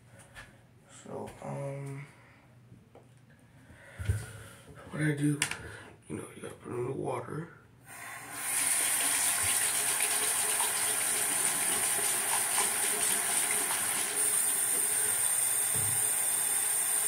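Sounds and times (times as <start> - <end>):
tap water running into sink: 8.0 - 17.0.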